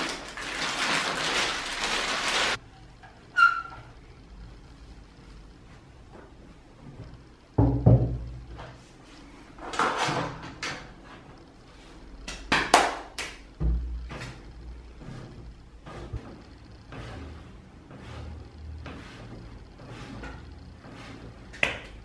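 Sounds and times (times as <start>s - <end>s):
rustling and scraping handling: 13.8s - 22.0s.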